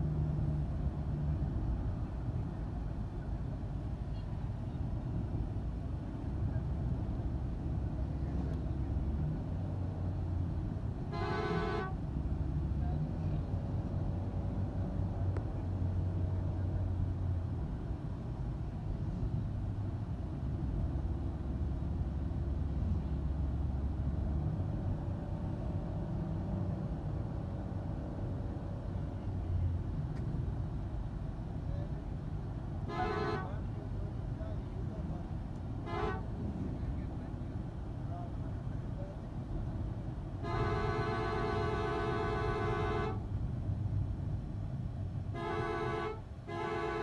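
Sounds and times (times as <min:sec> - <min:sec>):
vehicle engine and road rumble: 0:00.0 - 0:47.0
short horn blast: 0:35.8 - 0:36.3, 0:40.4 - 0:43.2.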